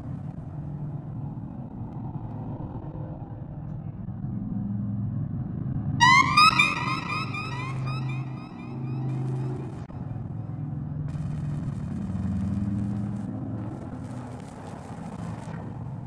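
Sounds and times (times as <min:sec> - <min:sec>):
falling whistle-like tones: 0:06.0 - 0:09.6.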